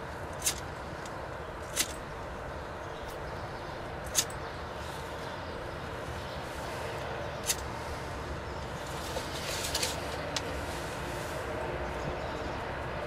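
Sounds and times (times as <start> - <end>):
outdoor background rush: 0.0 - 13.0.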